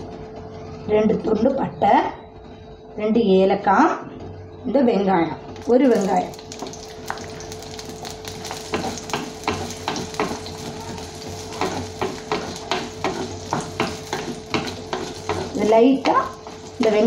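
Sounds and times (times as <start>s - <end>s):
onions sizzling in hot oil: 5.6s - 17.0s
wooden spatula scraping a pot: 8.7s - 17.0s.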